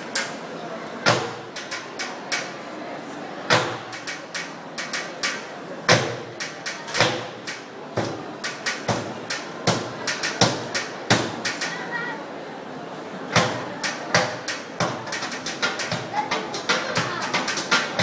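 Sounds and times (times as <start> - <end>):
wooden pestles pounding in metal wells: 3.5 - 11.8, 13.3 - 18.0.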